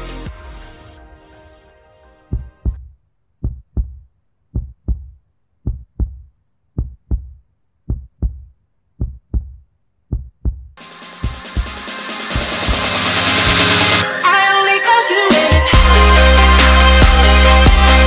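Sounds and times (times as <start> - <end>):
electronic music: 0.0 - 2.8, 10.8 - 18.0
heartbeat thumps: 2.3 - 12.9.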